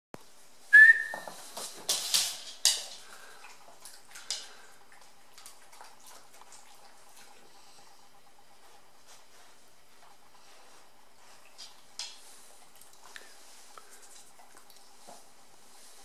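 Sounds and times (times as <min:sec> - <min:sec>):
high whistle-like tone: 0:00.7 - 0:01.3.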